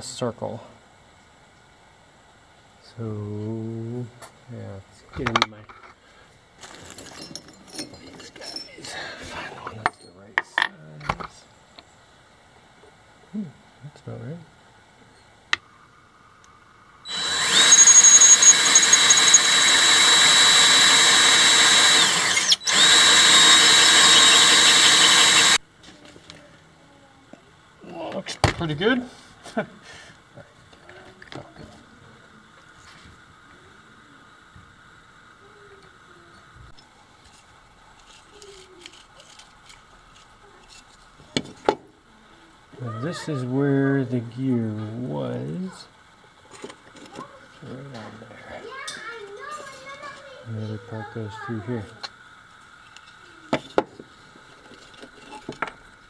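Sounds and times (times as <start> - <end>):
cordless drill with hole saw cutting plastic: 17.1 - 25.6.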